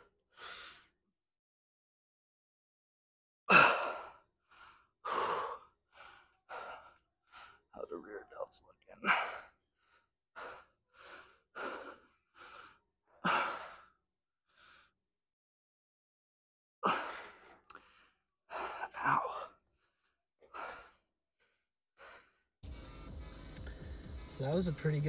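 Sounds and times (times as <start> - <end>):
man breathing hard: 0.0 - 1.0, 3.5 - 7.7, 9.0 - 15.0, 16.8 - 23.0.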